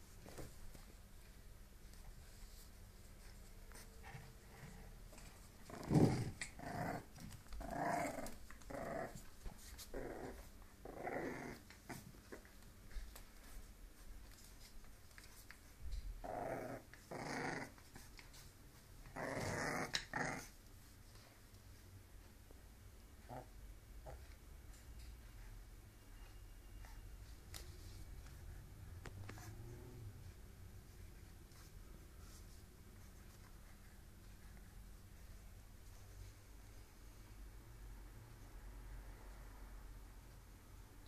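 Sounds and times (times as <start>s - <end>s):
dog growling: 5.6s - 12.0s, 16.2s - 17.8s, 19.0s - 20.6s.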